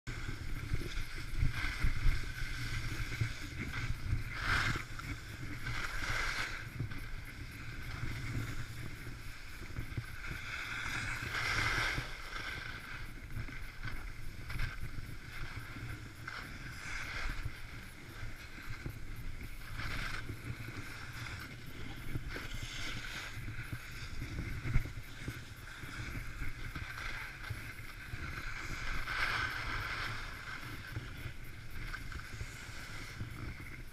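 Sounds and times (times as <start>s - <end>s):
low wind rumble: 0.1s - 33.9s
skis scraping over snow: 0.1s - 33.9s.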